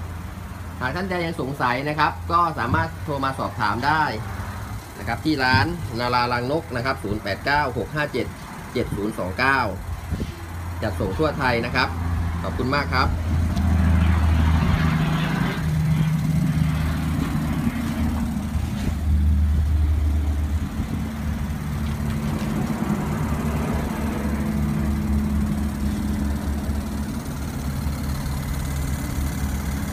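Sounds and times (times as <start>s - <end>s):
electric pump humming: 7.6s - 29.9s.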